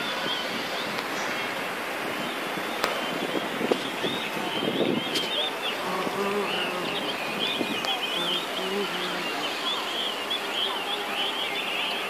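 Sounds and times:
gusty wind noise: 0.0s - 9.4s.

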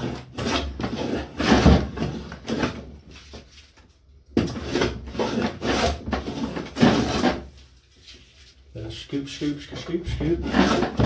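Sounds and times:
hand plane scraping wood: 0.0s - 3.2s, 4.4s - 7.6s, 9.7s - 11.0s.

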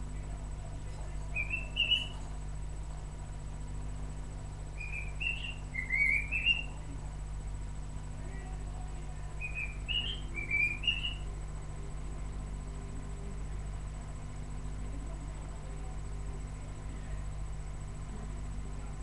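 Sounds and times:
parrot chirping: 1.3s - 2.2s, 4.8s - 6.8s, 9.4s - 11.2s.

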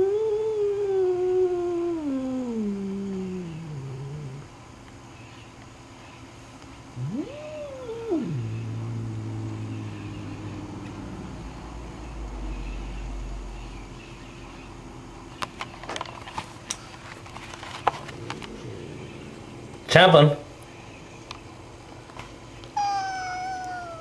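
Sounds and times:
cat growling: 0.0s - 4.6s, 7.0s - 11.8s, 18.1s - 20.0s, 22.8s - 24.0s
cat yowling: 7.0s - 11.4s, 22.8s - 24.0s.

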